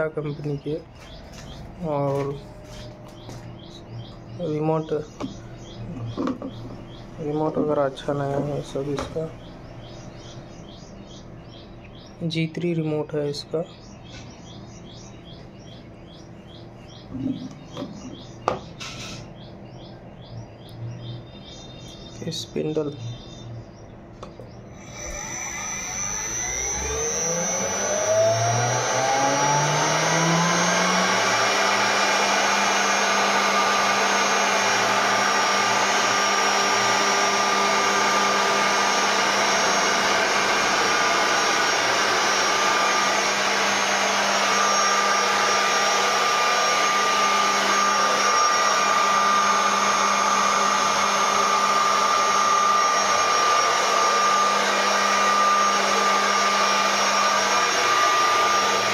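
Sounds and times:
router spindle motor whining: 0.0 - 11.7, 24.2 - 58.9.

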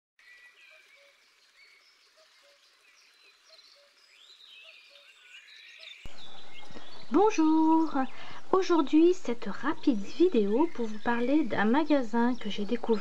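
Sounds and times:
birds chirping and whistling: 0.2 - 13.0.

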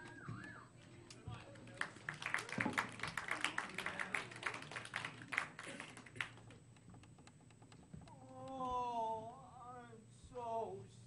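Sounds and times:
audience clapping: 1.1 - 6.6.

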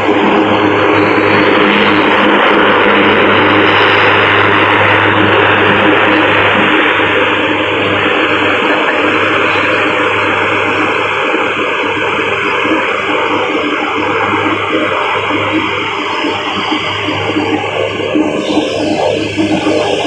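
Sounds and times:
turboprop engines and propellers: 0.0 - 20.0.

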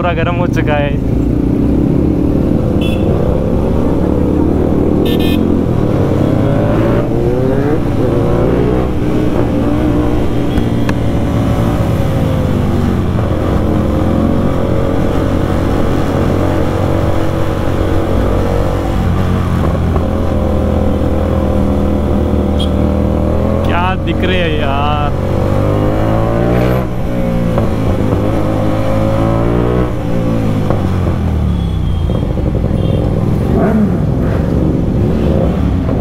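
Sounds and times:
traffic and other motorcycles: 0.0 - 36.0
motorcycle engine revving: 0.9 - 36.0
short horn beeps: 5.0 - 5.4, 22.6 - 22.8.

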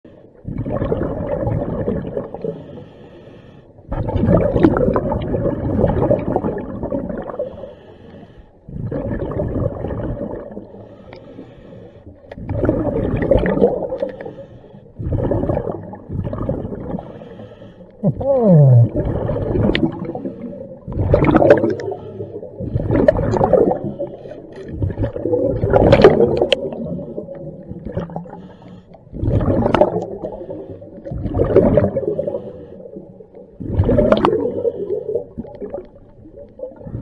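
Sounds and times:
bubbles gurgling: 0.4 - 2.7, 3.9 - 7.7, 8.7 - 11.6, 12.2 - 37.0
diver breathing through regulator: 2.4 - 4.0, 7.3 - 9.2, 10.6 - 12.5, 13.8 - 18.2, 18.8 - 25.2, 28.0 - 35.8.

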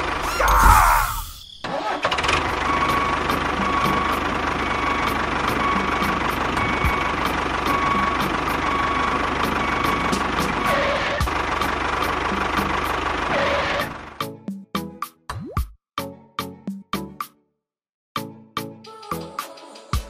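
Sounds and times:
tractor engine starting and idling: 1.6 - 14.2.

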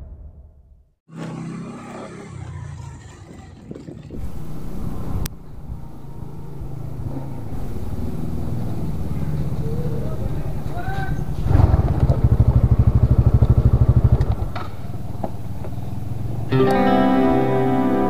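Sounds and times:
scooter engine running: 1.1 - 17.8
intro music: 16.5 - 18.0.

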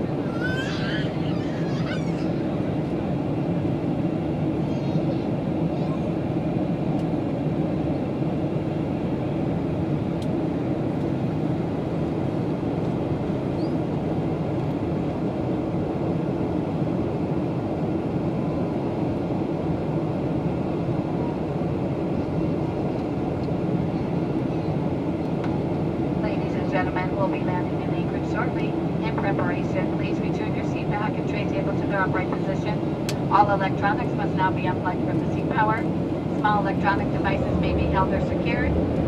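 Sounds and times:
jet engine drone in cabin: 0.0 - 39.0
rushing airflow: 32.7 - 39.0.

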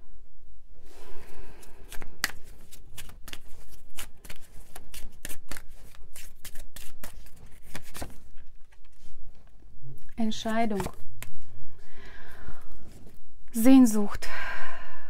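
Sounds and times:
cards shuffled by hand: 1.5 - 9.4, 10.0 - 11.5.

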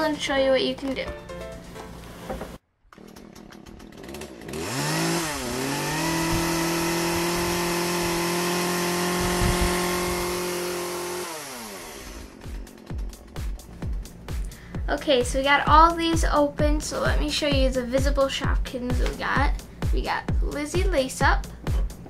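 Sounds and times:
chainsaw engine revving: 2.9 - 13.9.

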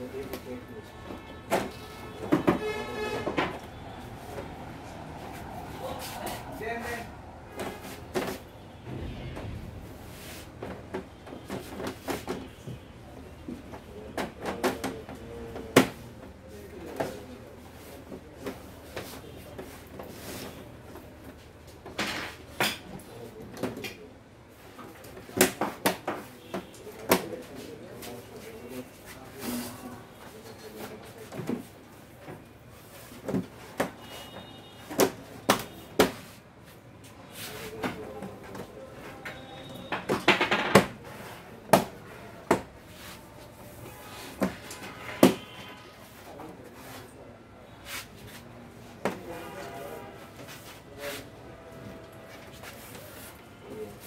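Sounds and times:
hard objects clicking and knocking: 39.8 - 41.0.

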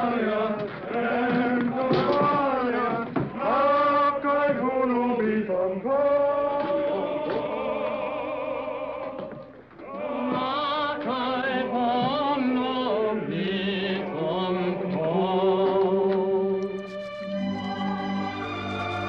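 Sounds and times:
male voices singing together: 0.0 - 16.6.

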